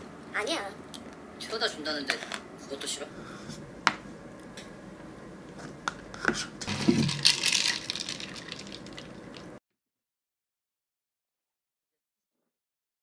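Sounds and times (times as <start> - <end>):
ice cubes rattling in glass jar: 6.7 - 9.6.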